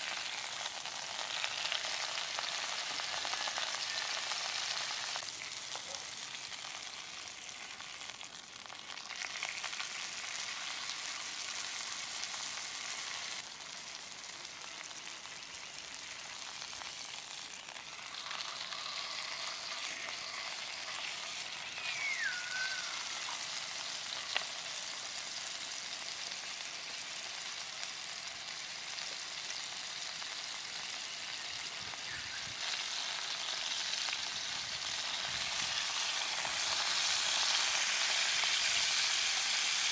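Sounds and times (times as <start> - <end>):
steak sizzling in a pan: 0.0 - 39.9
short falling whistle: 21.6 - 23.1.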